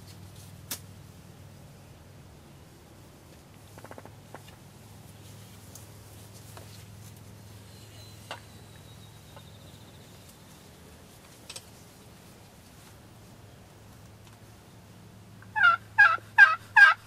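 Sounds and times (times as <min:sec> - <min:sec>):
small bird whistling and trilling: 0:07.6 - 0:10.3.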